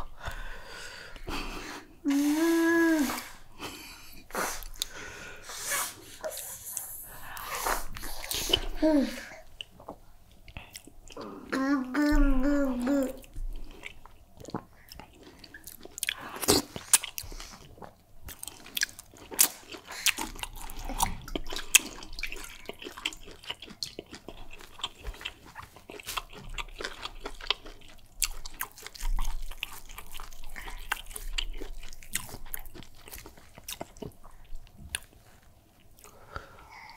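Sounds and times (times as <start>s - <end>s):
wet chewing and mouth sounds: 9.5s - 11.5s, 12.9s - 36.9s.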